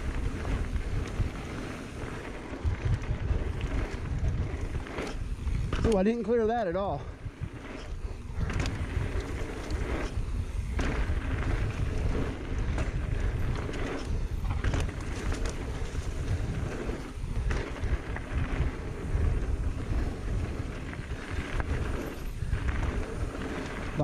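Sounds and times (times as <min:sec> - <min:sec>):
bike knocking over bumps: 0:00.0 - 0:06.2, 0:07.8 - 0:24.0
tyres rumbling on dirt: 0:00.0 - 0:24.0
wind buffeting microphone: 0:00.0 - 0:24.0.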